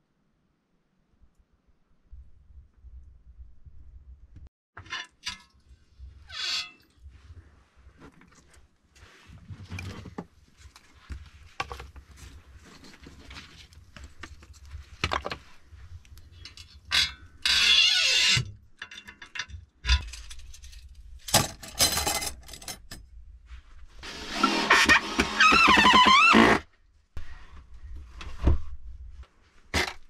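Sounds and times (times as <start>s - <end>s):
metallic clinks and knocks: 18.8s - 23.0s.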